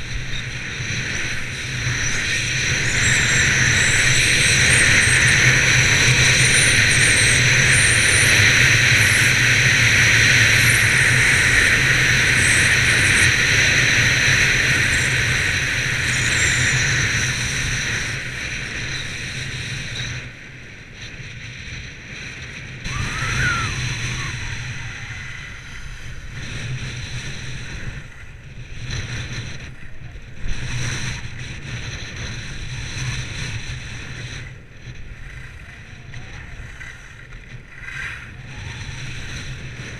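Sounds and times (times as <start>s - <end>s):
wind rushing over microphone: 0.0s - 39.9s
skis scraping snow: 36.6s - 39.9s.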